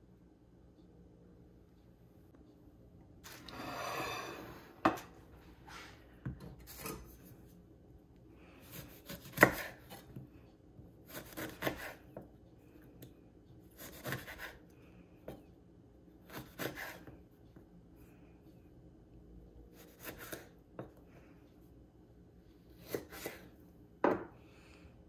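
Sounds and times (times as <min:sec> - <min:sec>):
knife slicing lime: 0:08.7 - 0:10.2, 0:11.1 - 0:12.1, 0:13.7 - 0:14.6, 0:16.2 - 0:17.1, 0:19.7 - 0:20.5, 0:22.8 - 0:23.5
knife knocking on cutting board: 0:24.0 - 0:24.3.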